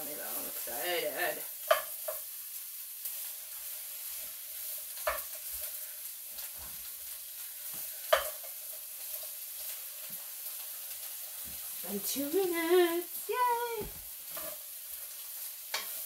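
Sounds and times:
vegetables sizzling in a frying pan: 0.0 - 16.0
spatula knocking against pan: 8.1 - 8.4.

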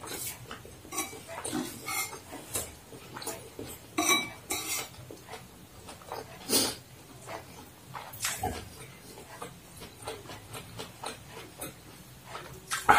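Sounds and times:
cutlery scraping ceramic bowl: 0.0 - 5.4
chewing: 4.7 - 12.9.

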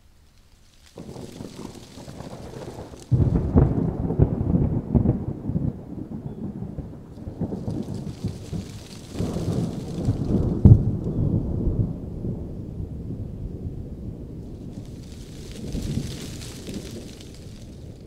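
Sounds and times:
low rolling rumble with crackling: 0.0 - 18.0
sharp crack: 0.1 - 3.9, 7.2 - 11.1, 14.6 - 18.0.

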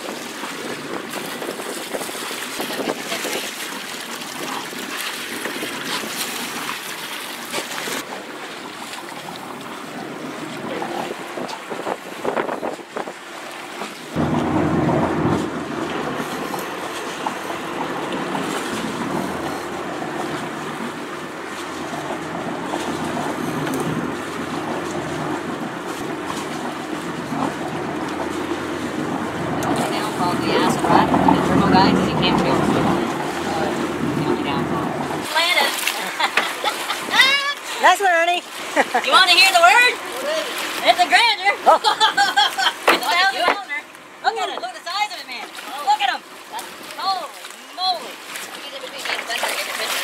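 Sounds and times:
wind noise on microphone: 0.0 - 3.6, 9.9 - 13.2, 14.1 - 35.3
boat engine running: 0.0 - 50.0
sea noise: 0.0 - 50.0.

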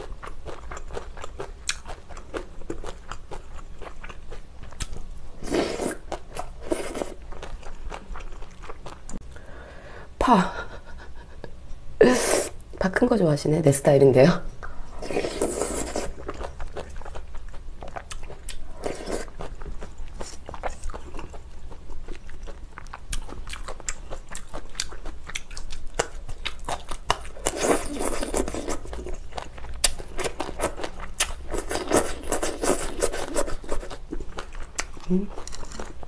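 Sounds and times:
noodle slurping: 15.0 - 16.3
wet chewing and mouth clicks: 15.4 - 36.0.

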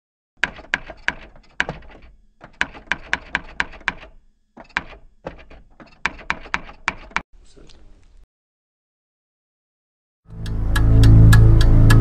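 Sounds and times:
typewriter keys striking: 0.4 - 7.2.

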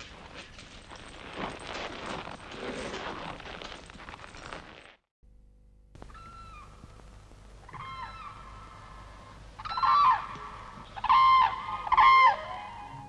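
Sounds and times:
wild geese honking: 7.7 - 13.0.

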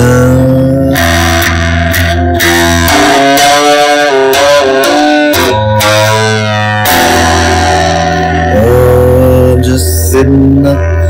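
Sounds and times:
electric guitar lead with bends: 0.0 - 11.0
low sustained notes: 0.0 - 11.0.

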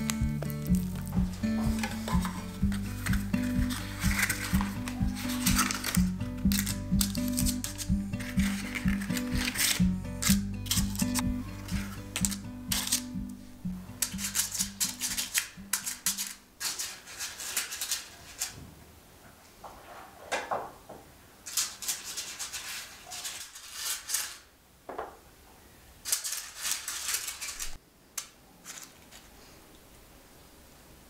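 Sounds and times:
paper liners rustling: 0.0 - 13.1, 14.0 - 18.6, 21.4 - 24.5, 26.0 - 27.8, 28.6 - 29.4.

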